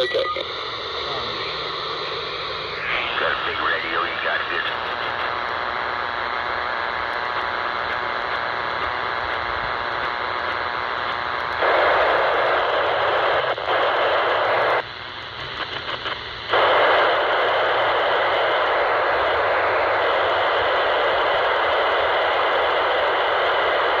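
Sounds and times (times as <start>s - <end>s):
radio static hissing: 0.0s - 24.0s.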